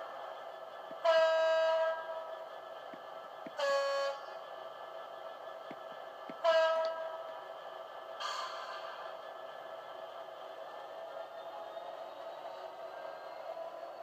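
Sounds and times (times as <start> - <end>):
steady background hum: 0.0 - 14.0
model train horn: 1.0 - 2.3, 3.6 - 4.4, 6.4 - 7.3.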